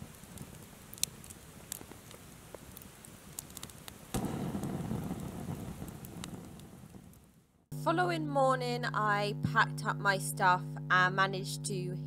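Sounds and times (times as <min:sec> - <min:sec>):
campfire crackling and popping: 0:00.0 - 0:07.7
low rumbling noise: 0:04.2 - 0:11.4.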